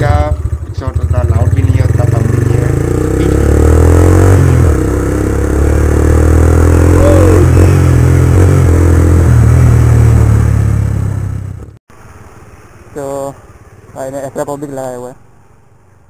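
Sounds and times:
motorcycle engine: 0.0 - 11.8
wind and road noise: 0.0 - 16.0.

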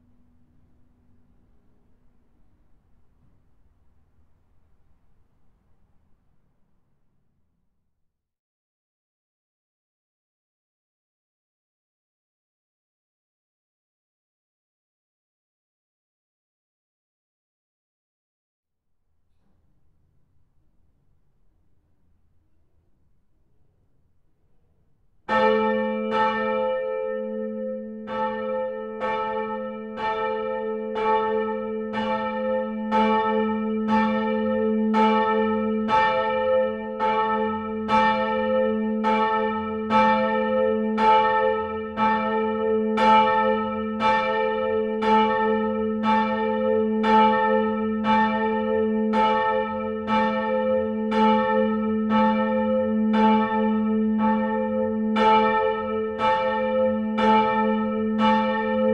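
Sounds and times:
church bell ringing: 25.2 - 58.9.

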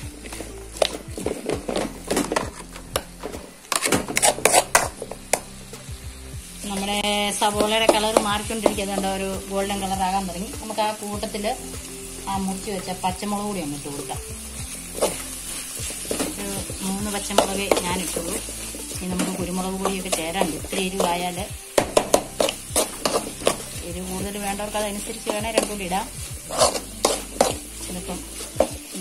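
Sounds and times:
background music with melody: 0.0 - 29.0
onions sizzling in a pan: 0.0 - 29.0
spoon scraping a steel pan: 3.7 - 4.9, 26.5 - 27.6.

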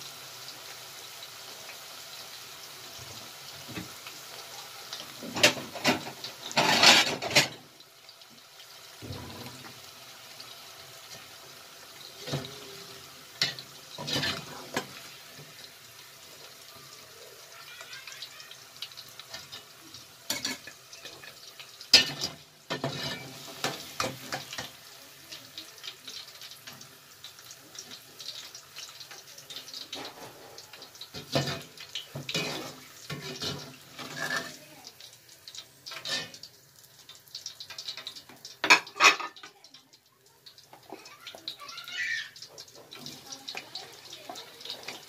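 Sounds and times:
oil sizzling: 0.0 - 45.0
metal skimmer scraping pot: 32.3 - 34.6.

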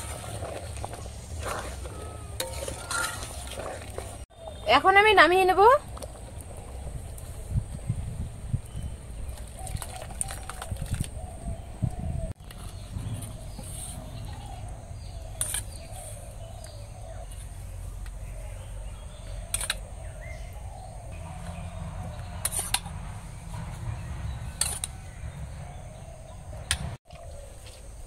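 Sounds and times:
spoon scraping steel bowl: 0.0 - 4.2.

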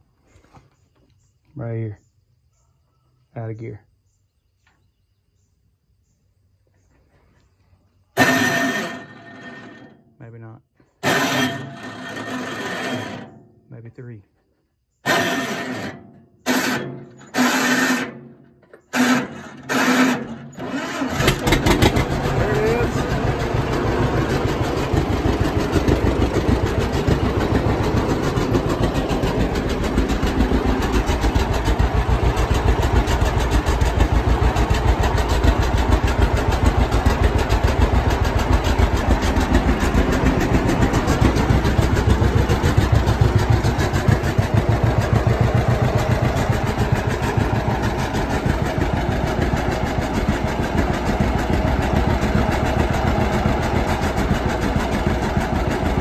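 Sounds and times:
two-cylinder engine running: 15.1 - 56.0.

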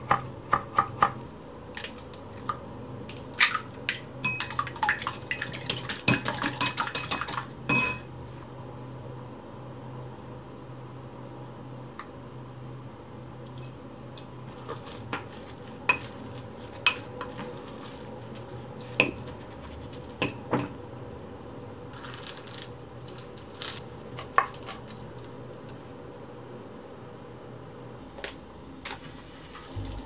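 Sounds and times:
low steady hum: 1.2 - 30.0.

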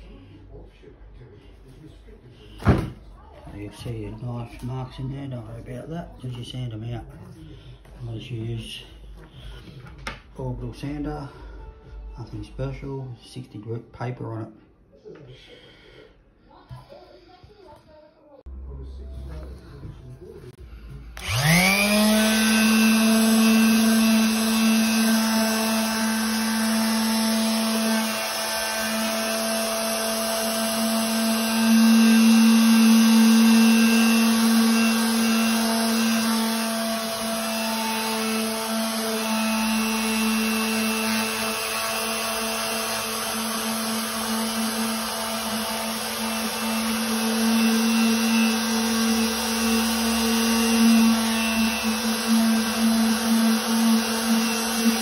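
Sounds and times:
electric orbital sander humming: 21.2 - 55.0.

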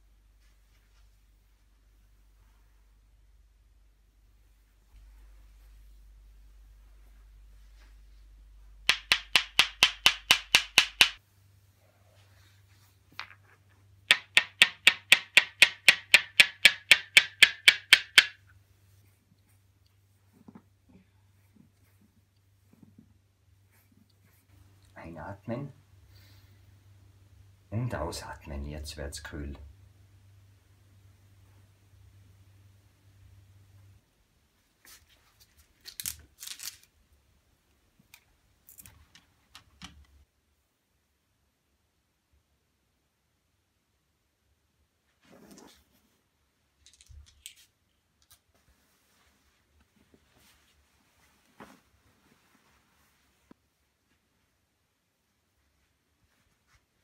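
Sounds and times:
cloth rustling: 4.2 - 8.8, 48.4 - 54.6.

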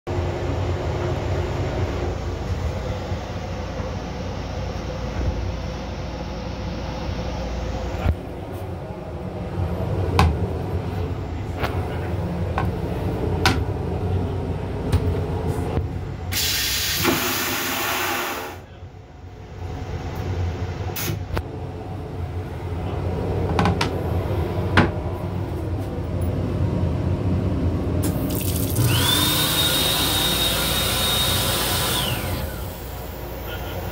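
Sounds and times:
moving train rumble: 0.1 - 17.4, 18.5 - 28.1
steady high whine: 0.1 - 28.2, 28.9 - 33.9
toilet flushing: 16.3 - 18.6, 28.0 - 33.4
faucet running: 28.0 - 31.9.

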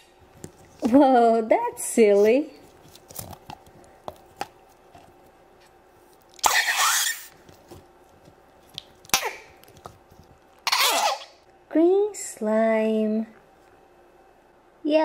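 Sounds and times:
putty fart noise: 6.4 - 7.3, 10.6 - 11.4.

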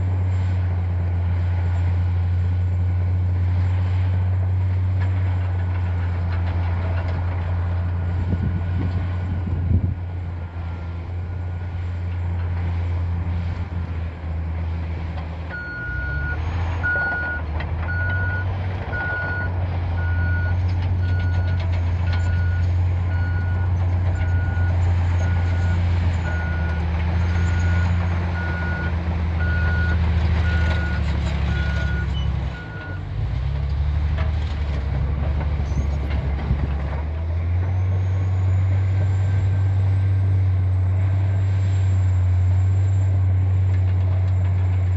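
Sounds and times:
bulldozer diesel engine: 0.0 - 44.9
reversing alarm beeping: 15.5 - 33.0.

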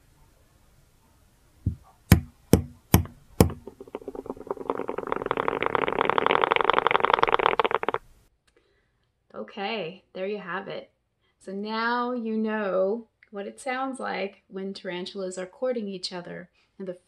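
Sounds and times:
tarantula tapping: 1.7 - 4.6.

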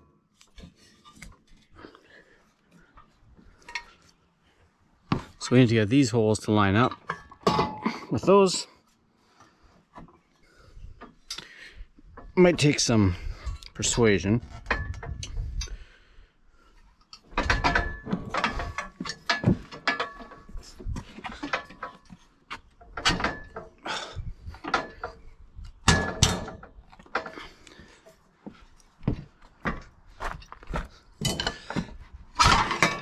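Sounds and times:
steel brackets knocking and clanking: 6.8 - 8.4, 14.5 - 15.8, 17.1 - 23.8, 24.5 - 27.6, 30.7 - 33.0.

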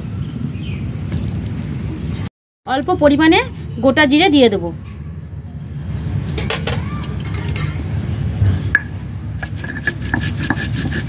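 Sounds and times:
metal spatula scraping a wok: 9.4 - 11.0.

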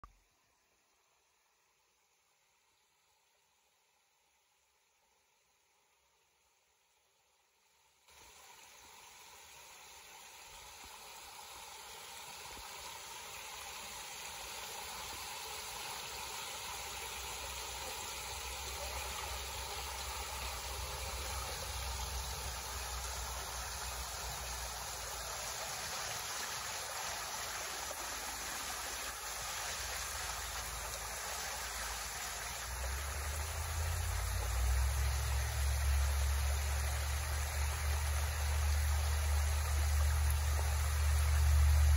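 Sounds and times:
water rushing over spillway: 8.1 - 41.9
deep water rumble: 32.6 - 41.9.

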